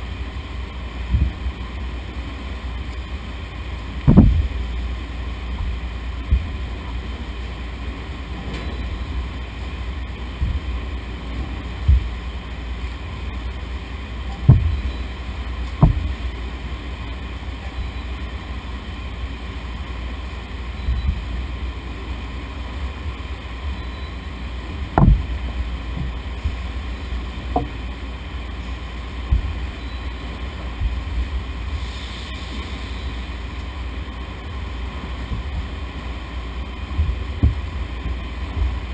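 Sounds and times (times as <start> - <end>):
machinery rumbling: 0.0 - 38.9
sharp knocks: 4.0 - 4.5, 14.4 - 14.9, 15.7 - 16.2, 24.9 - 25.4, 27.5 - 27.8.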